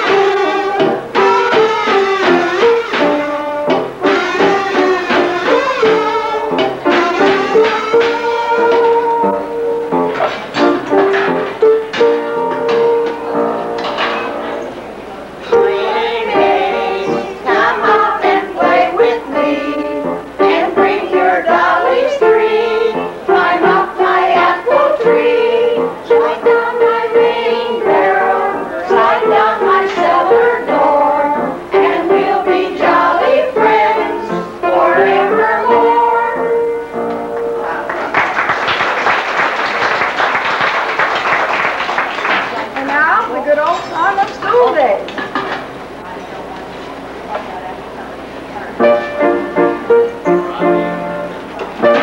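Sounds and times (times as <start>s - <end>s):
kitchen band playing lively tune: 0.0s - 52.0s
applause: 37.8s - 43.0s.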